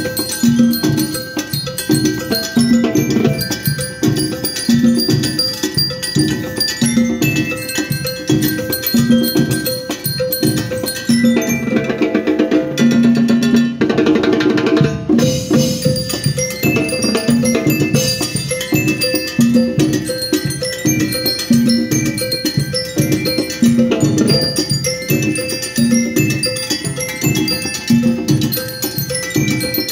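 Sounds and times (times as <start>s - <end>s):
drum roll: 0.0s - 29.8s
mallet percussion tune: 0.0s - 29.9s
steady drum beat: 0.0s - 29.9s.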